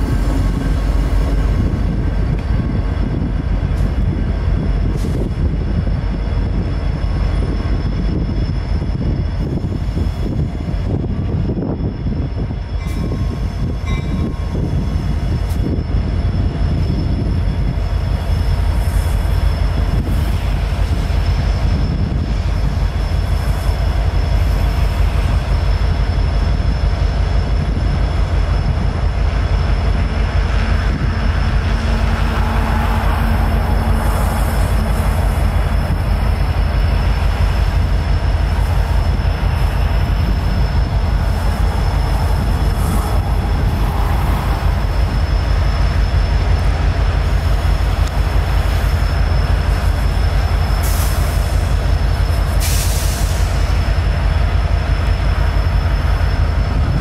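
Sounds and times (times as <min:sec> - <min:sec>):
high whine: 0:00.0 - 0:57.0
locomotive engine rumble: 0:00.0 - 0:57.0.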